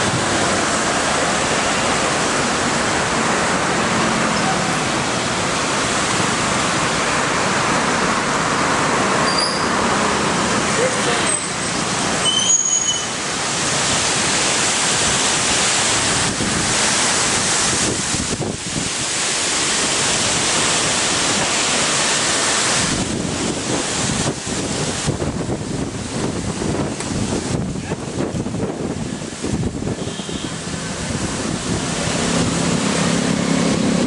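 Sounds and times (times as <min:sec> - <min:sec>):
wind gusting through trees: 0:00.0 - 0:34.0
wind buffeting microphone: 0:15.9 - 0:19.2, 0:22.8 - 0:34.0.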